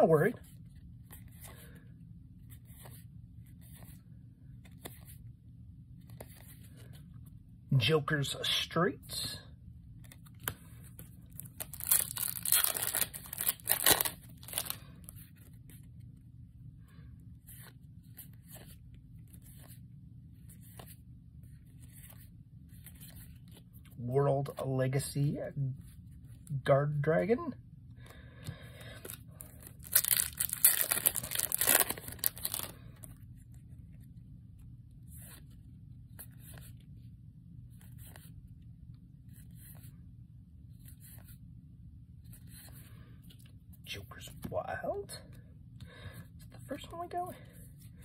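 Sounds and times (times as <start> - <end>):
card handling: 9.9 - 16.2, 28.4 - 34.1
foil wrapper tearing: 11.4 - 14.8, 29.6 - 32.7.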